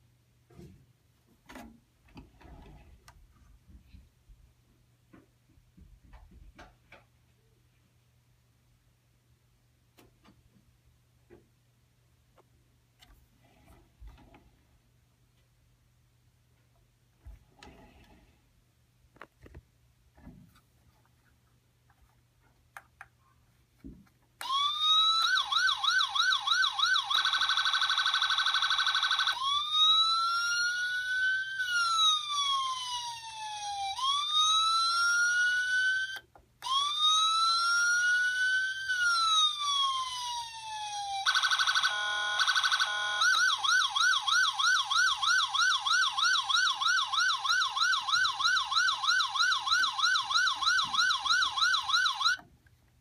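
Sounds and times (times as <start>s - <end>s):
toy police siren: 24.4s - 52.4s.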